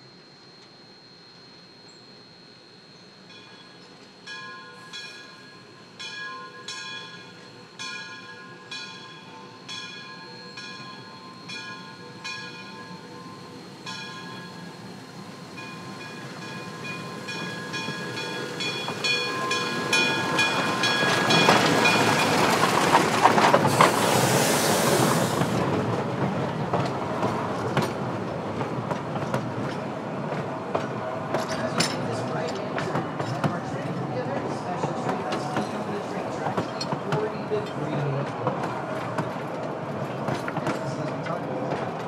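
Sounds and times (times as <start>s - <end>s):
train running noise: 0.0s - 42.0s
locomotive bell ringing: 3.2s - 22.8s
loud steam hiss: 11.4s - 26.5s.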